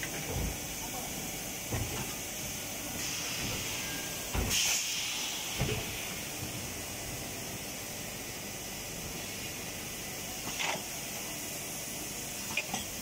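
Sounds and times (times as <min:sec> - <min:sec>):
compressed air hissing: 0:02.2 - 0:07.3.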